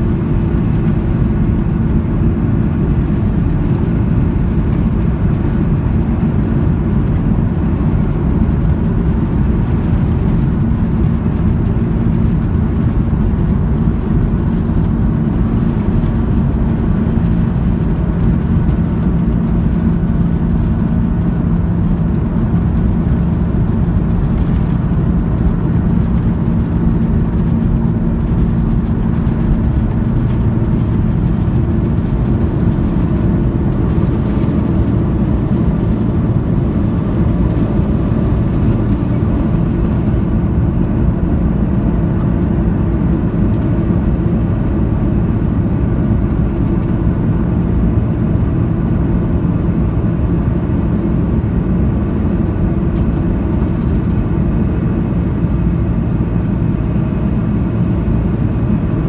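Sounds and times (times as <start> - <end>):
jet engines at takeoff thrust: 0.0 - 59.0.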